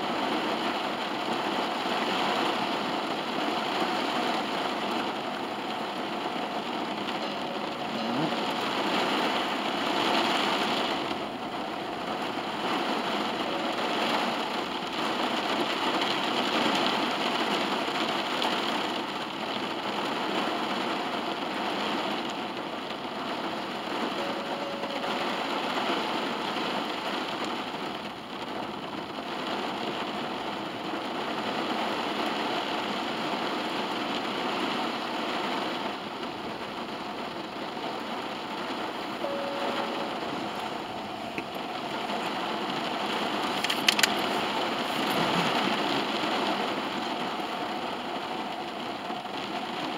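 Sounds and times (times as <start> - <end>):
heavy rain drumming on car roof: 0.0 - 49.9.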